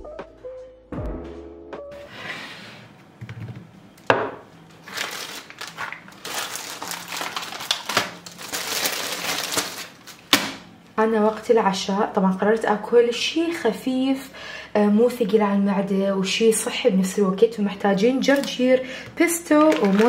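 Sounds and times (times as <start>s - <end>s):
plastic packaging crinkling: 4.7s - 10.6s, 18.2s - 18.6s, 19.2s - 20.0s.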